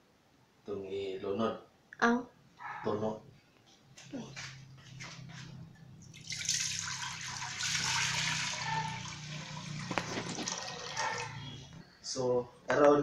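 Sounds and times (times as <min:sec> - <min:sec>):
milk pouring into a metal pot: 0:06.0 - 0:11.6.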